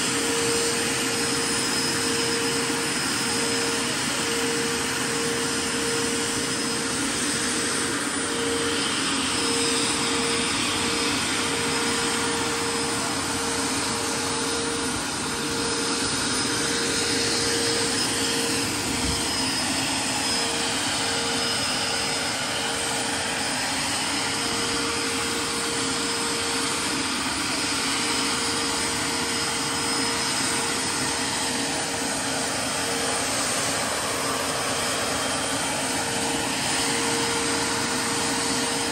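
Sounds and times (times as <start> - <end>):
model helicopter jet whine: 0.0 - 38.9.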